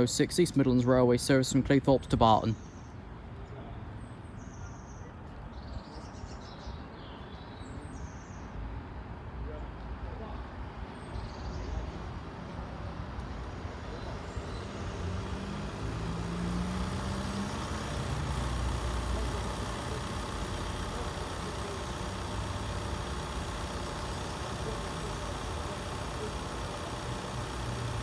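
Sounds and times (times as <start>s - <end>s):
vehicle engines rumbling: 9.5s - 28.0s
engine note rising: 13.6s - 28.0s.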